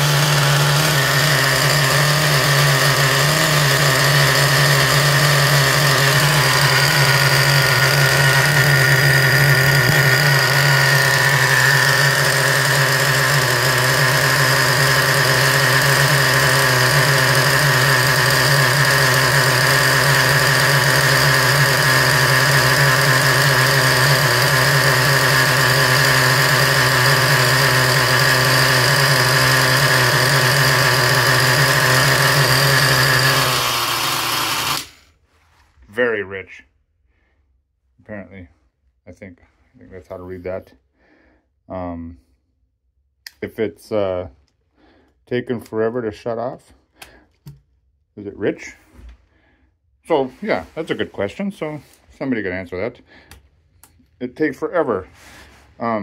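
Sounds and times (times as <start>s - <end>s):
small nitro engine idling: 0.0s - 35.0s.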